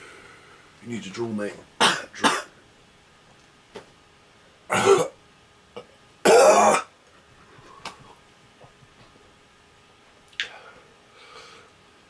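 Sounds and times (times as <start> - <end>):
man clearing his throat: 1.8 - 2.5, 4.7 - 5.2, 5.8 - 6.9
man coughing: 1.8 - 2.5, 4.7 - 5.2, 6.3 - 6.9.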